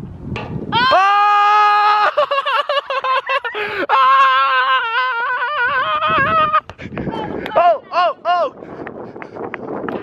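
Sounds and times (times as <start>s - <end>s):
young man yelling: 7.1s - 8.6s.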